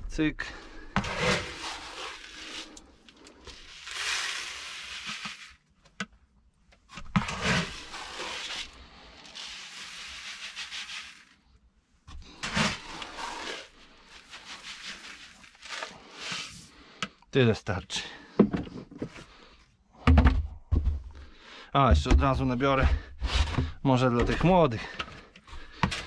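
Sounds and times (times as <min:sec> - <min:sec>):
grain pouring and rattling: 0:00.9 - 0:05.8, 0:07.0 - 0:11.6, 0:12.2 - 0:16.8.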